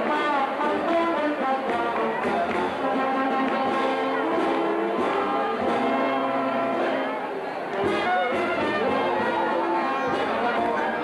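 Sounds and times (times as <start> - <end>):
brass band playing: 0.0 - 11.0.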